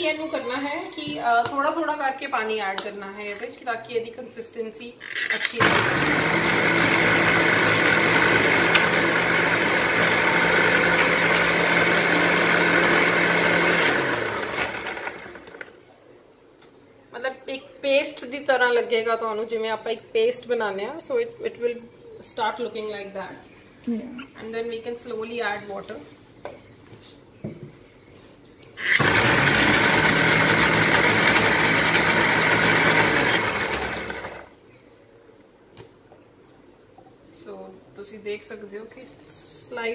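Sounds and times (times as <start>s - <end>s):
mixer grinder motor whine: 5.5s - 15.7s, 28.8s - 34.5s.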